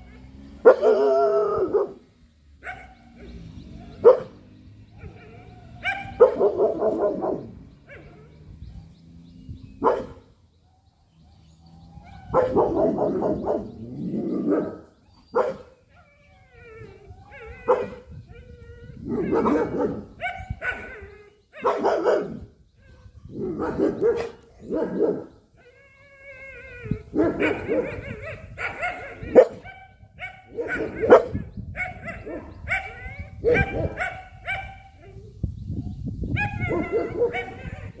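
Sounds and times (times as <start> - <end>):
puppy barking: 0.6 - 2.0, 2.6 - 4.4, 5.0 - 8.3, 9.8 - 10.2, 12.1 - 13.7, 14.5 - 15.7, 17.7 - 18.0, 19.2 - 21.0, 21.6 - 22.4, 23.5 - 25.3, 27.1 - 35.2, 36.4 - 38.0.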